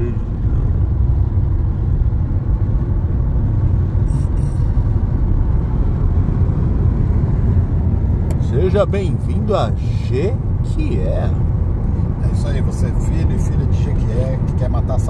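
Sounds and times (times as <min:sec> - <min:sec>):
car interior road rumble: 0:00.0 - 0:15.0.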